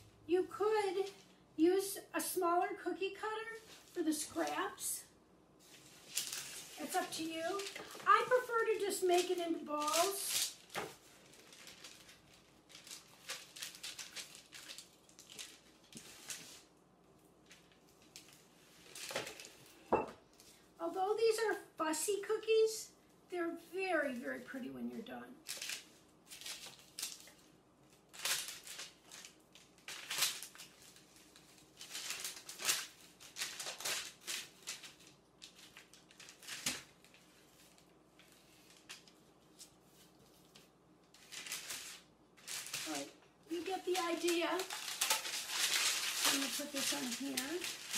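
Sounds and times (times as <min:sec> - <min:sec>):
soft rustling and scraping of dough: 0:02.5 - 0:47.9
knife scraping parchment paper: 0:05.6 - 0:16.7, 0:41.2 - 0:47.9
paper crinkling: 0:05.6 - 0:20.7, 0:25.4 - 0:47.9.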